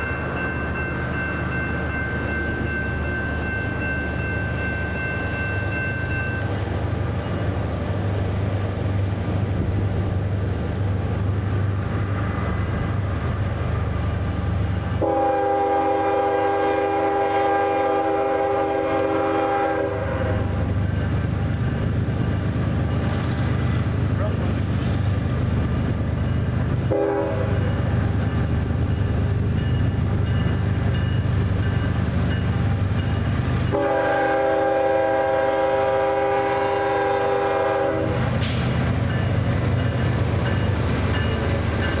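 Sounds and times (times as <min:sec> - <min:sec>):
crossing bell ringing: 0:00.0 - 0:08.0, 0:15.0 - 0:23.4, 0:26.1 - 0:38.2, 0:38.9 - 0:42.0
locomotive rumbling: 0:00.0 - 0:42.0
train air horn blast: 0:15.0 - 0:20.5, 0:26.9 - 0:27.7, 0:33.7 - 0:38.2.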